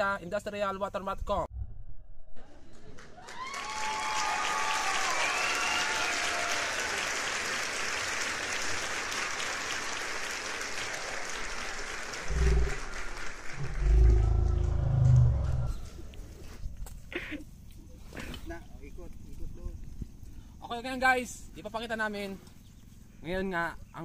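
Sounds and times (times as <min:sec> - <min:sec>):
crowd applause: 0:02.6 - 0:15.6
crowd whooping: 0:03.2 - 0:07.4.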